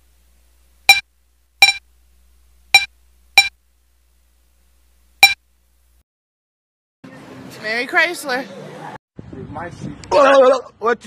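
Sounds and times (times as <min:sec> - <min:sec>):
bright pitched blip: 0:02.8 - 0:03.5.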